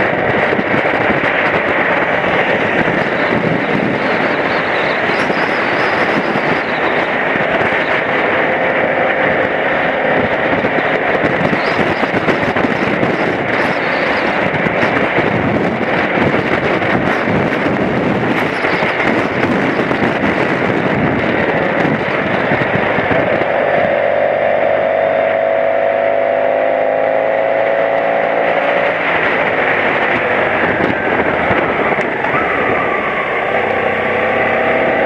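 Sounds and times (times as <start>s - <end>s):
motorcycle engine: 0.0s - 35.0s
wind and road noise: 0.0s - 35.0s.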